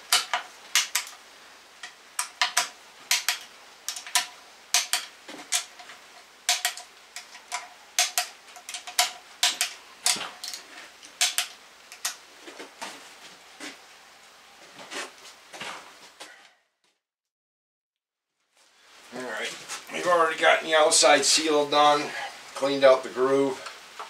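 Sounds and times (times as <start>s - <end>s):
torque wrench clicking: 1.8s - 5.8s, 6.5s - 10.6s, 11.2s - 12.2s.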